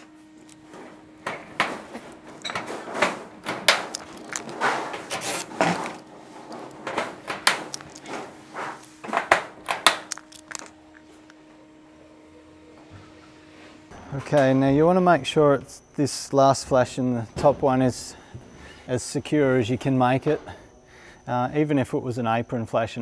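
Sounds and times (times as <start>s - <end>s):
rivet gun clicking and crunching: 3.4s - 6.0s, 9.6s - 10.8s
rivet mandrels snapping: 9.6s - 11.4s.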